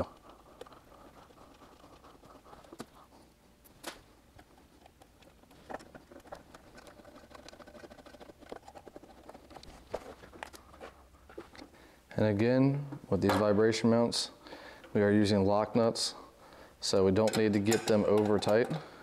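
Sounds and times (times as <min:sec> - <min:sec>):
small bolts clicking and tapping: 0:17.2 - 0:18.8.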